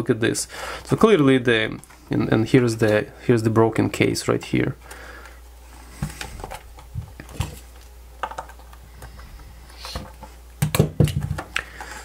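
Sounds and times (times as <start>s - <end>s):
plastic case clicks and knocks: 10.6s - 11.6s.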